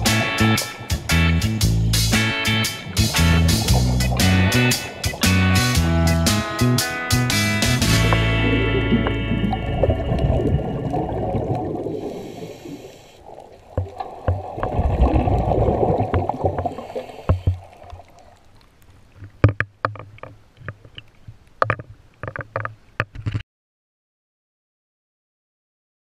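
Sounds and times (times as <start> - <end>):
water splashing against housing: 0.0 - 12.0, 13.2 - 18.2
underwater bubbles gurgling: 2.9 - 21.5.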